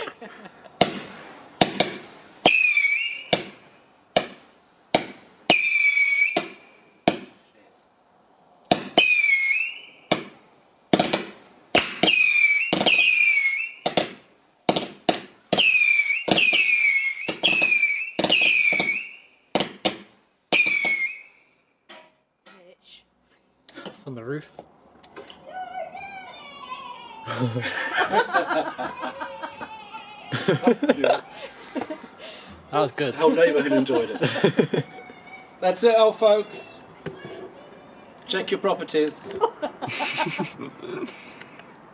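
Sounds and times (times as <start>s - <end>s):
firework launch bangs: 0.8s - 7.4s, 8.7s - 21.3s
shrill firework whistle: 2.4s - 3.5s, 5.5s - 6.9s, 8.8s - 10.1s, 11.8s - 14.0s, 15.5s - 19.4s, 20.5s - 21.5s.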